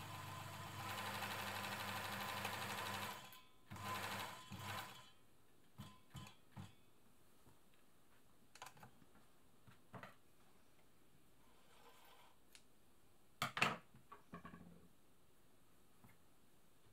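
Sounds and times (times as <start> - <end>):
sewing machine stitching: 0.0 - 5.2.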